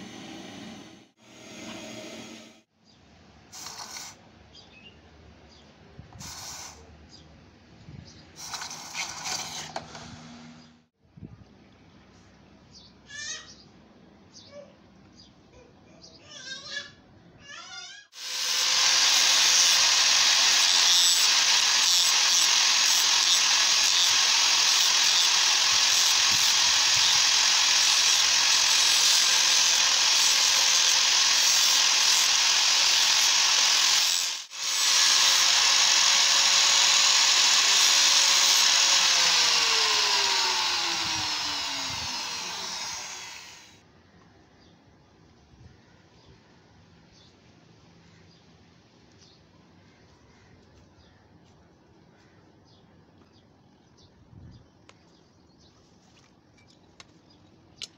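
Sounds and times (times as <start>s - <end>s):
angle grinder grinding metal: 8.4s - 10.0s, 18.2s - 43.8s
grinder motor winding down: 18.2s - 43.8s.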